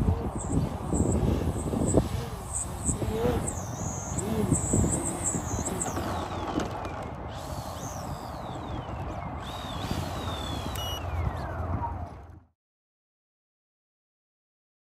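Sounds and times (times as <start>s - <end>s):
electric motor whine: 0.0s - 11.8s
wind and propeller wash: 0.0s - 12.4s.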